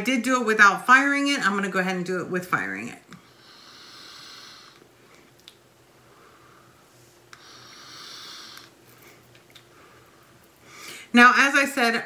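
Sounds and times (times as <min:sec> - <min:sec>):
air hissing through vape: 0:03.3 - 0:04.8, 0:07.3 - 0:08.8.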